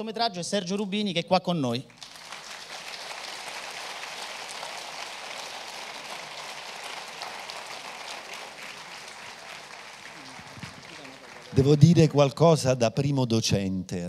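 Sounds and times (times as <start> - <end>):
audience applauding: 1.9 - 12.6.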